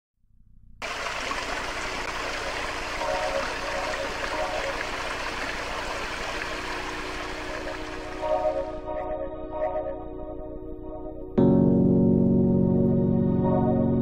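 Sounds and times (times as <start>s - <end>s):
waterfall splashing over rocks: 0.8s - 8.6s.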